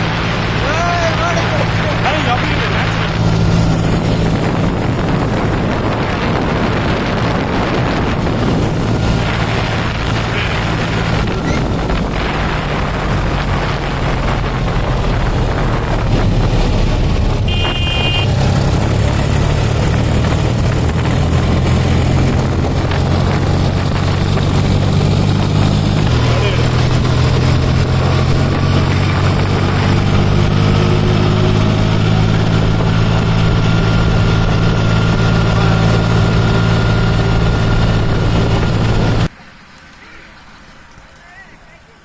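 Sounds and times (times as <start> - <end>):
tractor diesel engine running: 0.0 - 39.3
wind and tyre noise: 0.0 - 42.0.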